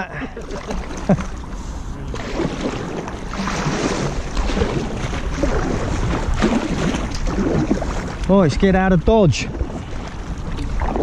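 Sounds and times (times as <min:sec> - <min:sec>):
kayak paddle splashing water: 0:00.4 - 0:11.0
wind noise on microphone: 0:02.0 - 0:11.0.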